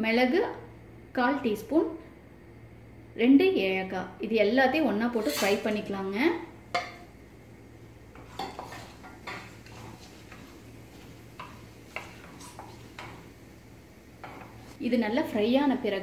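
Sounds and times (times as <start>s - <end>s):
spatula scraping pan: 5.2s - 5.9s, 8.1s - 13.6s, 14.2s - 14.8s
spices clattering into pan: 8.1s - 14.7s.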